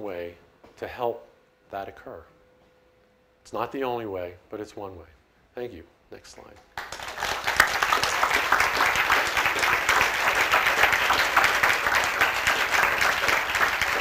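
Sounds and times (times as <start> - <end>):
audience applauding: 6.8 - 14.0.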